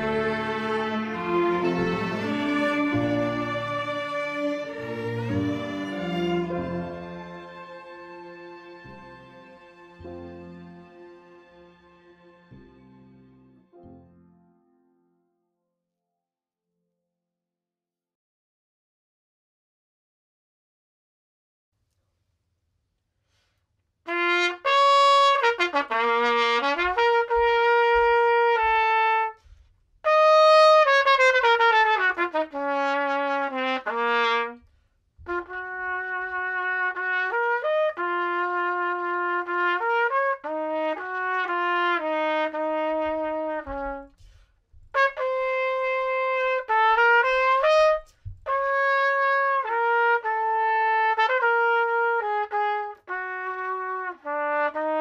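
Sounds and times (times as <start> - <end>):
solo trumpet melody: 0.0 - 12.8, 24.1 - 44.3, 44.9 - 55.0.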